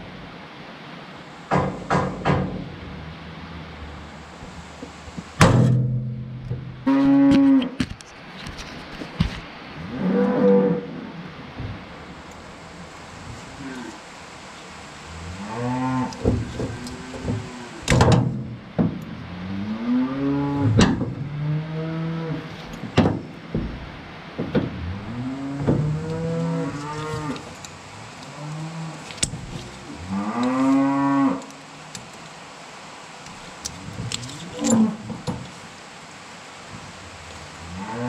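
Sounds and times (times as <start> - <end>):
cattle mooing: 6.8 - 7.7, 15.1 - 18.3, 19.2 - 22.6, 24.8 - 27.5, 28.1 - 31.6, 34.1 - 35.2, 37.6 - 38.0.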